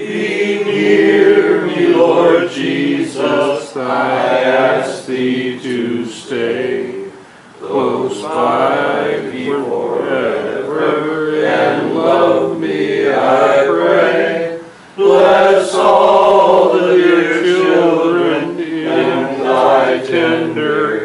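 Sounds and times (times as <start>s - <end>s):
voices singing a hymn: 0.0s - 21.0s.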